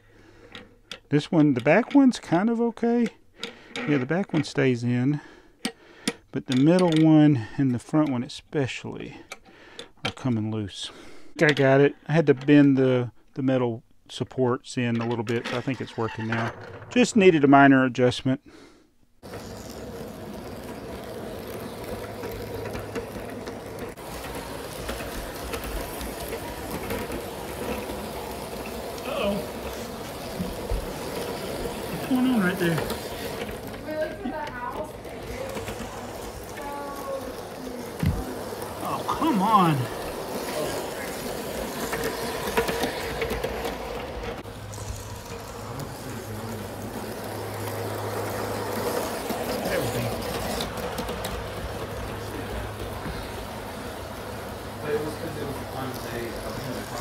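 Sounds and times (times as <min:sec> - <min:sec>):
model train motor whirring: 0:19.2 - 0:57.0
wheels rolling on rails: 0:19.2 - 0:57.0.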